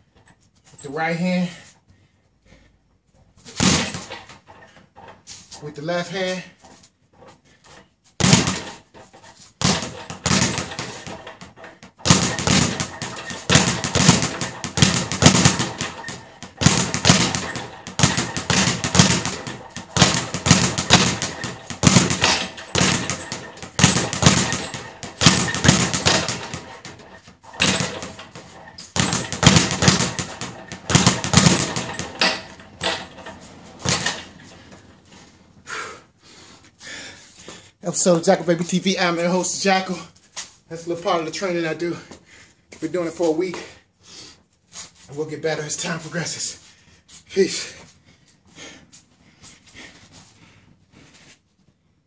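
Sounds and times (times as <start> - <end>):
speed bag rattling: 8.2 - 34.7.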